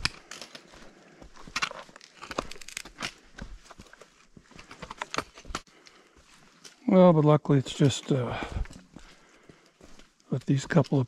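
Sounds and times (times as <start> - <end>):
trekking poles clicking on stone: 0.0 - 6.8
footsteps on rocky trail: 0.0 - 11.0.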